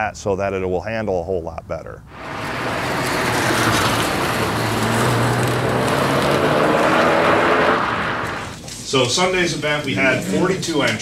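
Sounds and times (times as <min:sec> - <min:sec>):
broad rushing noise: 0:02.1 - 0:08.6
car engine running hard: 0:02.1 - 0:08.6.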